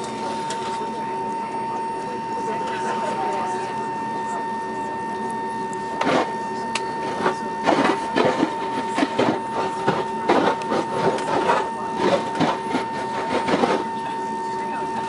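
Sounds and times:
steady high whine: 0.0s - 15.0s.

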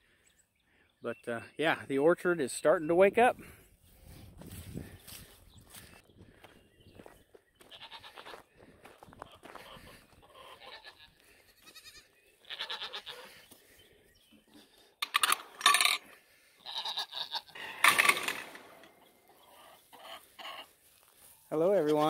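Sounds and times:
goats bleating: 7.6s - 8.4s, 10.2s - 13.4s, 16.6s - 17.8s.

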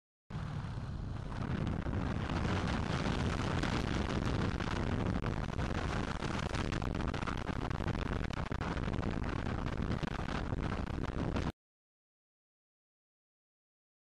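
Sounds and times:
wind buffeting microphone: 0.3s - 11.5s.

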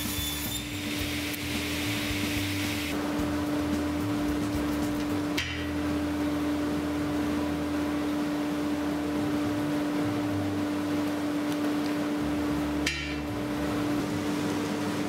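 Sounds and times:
table saw humming: 0.0s - 3.0s.

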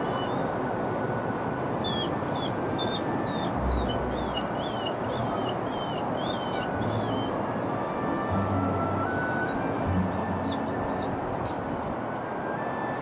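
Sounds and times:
dog whimpering: 1.9s - 7.3s.

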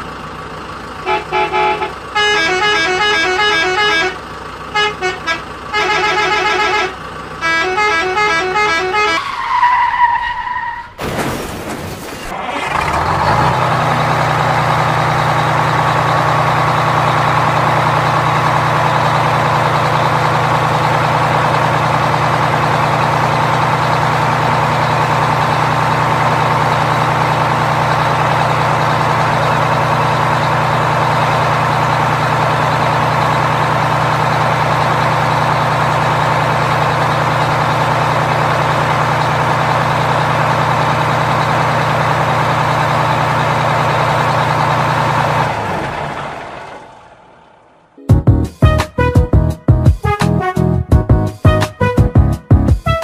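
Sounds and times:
truck engine running: 0.0s - 53.0s
horn honking short toots: 1.0s - 9.5s.

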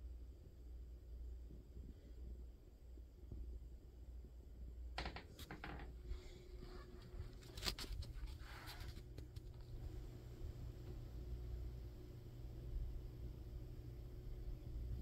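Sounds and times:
low steady hum: 0.0s - 15.0s
handling clicks and rustles: 6.8s - 9.7s.

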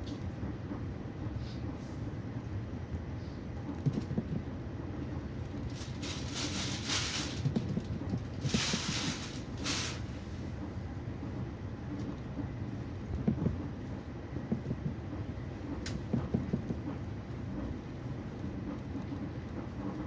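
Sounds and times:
train wheels rumbling on track: 0.0s - 20.0s.

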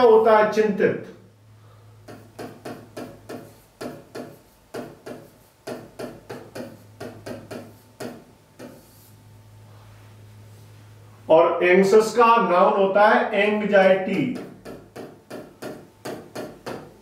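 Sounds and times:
steady low hum: 0.0s - 17.0s
pen tapping on touchscreen: 2.0s - 9.0s, 14.3s - 16.9s.

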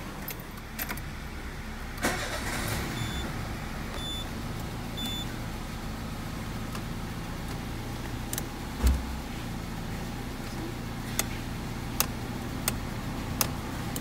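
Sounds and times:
car engine starting and idling: 0.0s - 14.0s
short electronic beeps: 2.9s - 3.3s, 4.0s - 4.3s, 5.0s - 5.3s.

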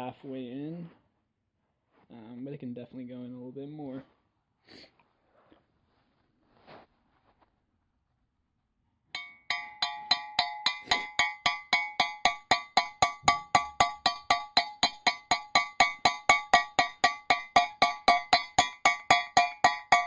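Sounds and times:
hammer tapping metal socket: 9.2s - 20.0s.

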